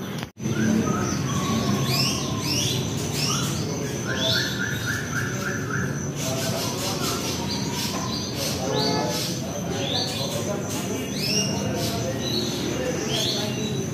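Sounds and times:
songbirds chirping and whistling: 0.0 - 13.9.

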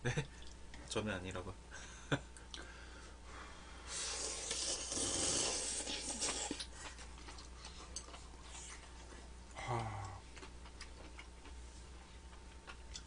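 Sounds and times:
noodles slurped noisily: 3.9 - 6.7.

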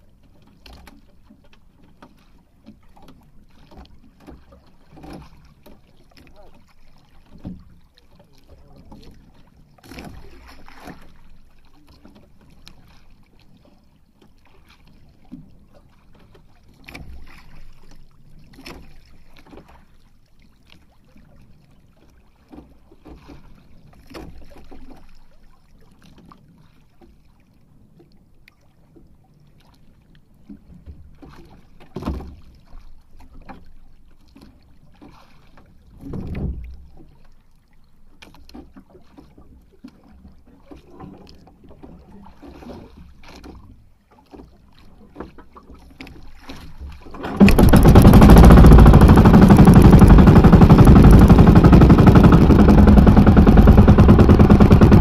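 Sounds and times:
wind and water rumble: 0.0 - 55.0
knocks against hull: 0.3 - 7.8, 30.6 - 33.7, 34.4 - 37.1, 45.1 - 55.0.

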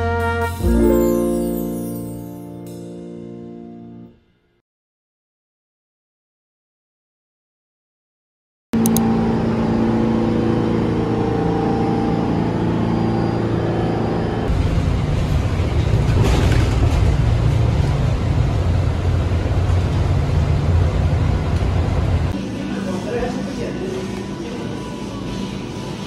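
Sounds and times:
mechanical hum with held tones: 8.8 - 16.0
bus engine rumble: 8.8 - 22.4
road noise: 13.5 - 22.7.

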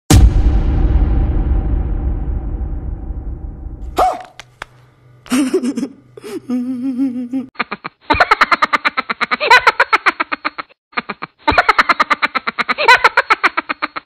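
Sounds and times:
laughter-like voice pulses: 5.3 - 14.0.

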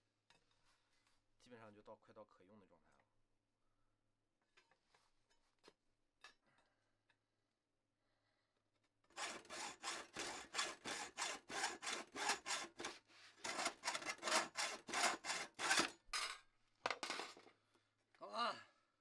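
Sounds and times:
hacksaw cutting metal: 9.1 - 16.0.

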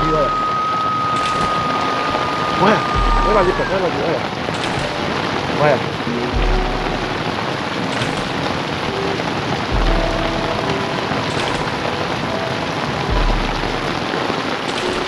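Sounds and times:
deep low swell: 0.0 - 5.2
heavy rain pouring on street: 0.0 - 15.0.

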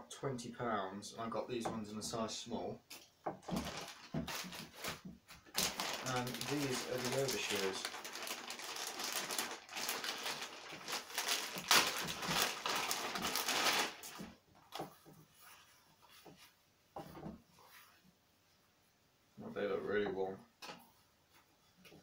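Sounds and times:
plastic bag crinkling: 3.4 - 14.4.

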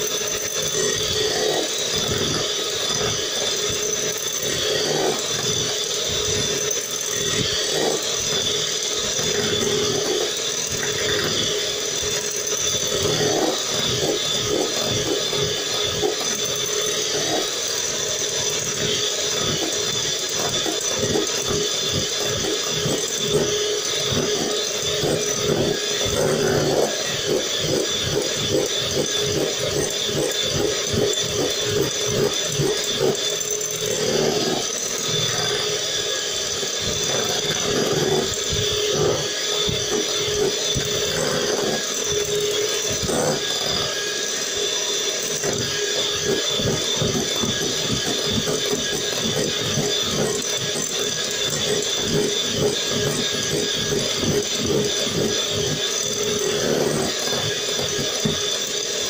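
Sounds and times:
electric hand mixer running: 0.0 - 59.0.

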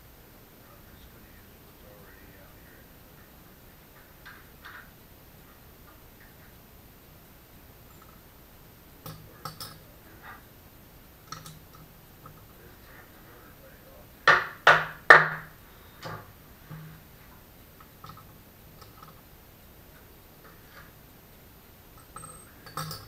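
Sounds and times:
tools handled on a workbench: 9.0 - 10.4, 11.3 - 12.6, 17.8 - 19.2, 21.9 - 23.0
loud knocks: 14.3 - 17.0.

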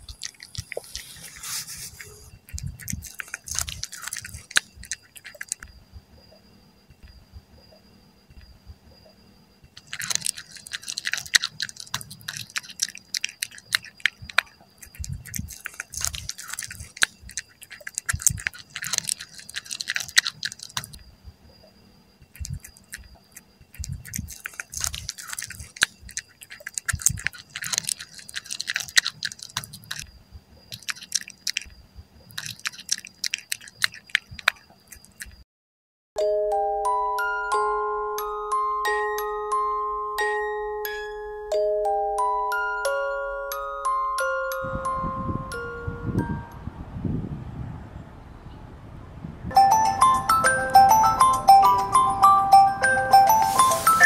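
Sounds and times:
cat chewing: 0.0 - 5.8, 9.8 - 21.1, 22.3 - 35.4.

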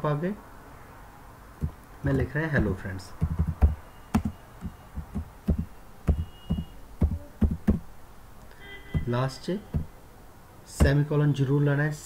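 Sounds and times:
computer keyboard typing: 3.2 - 7.8.

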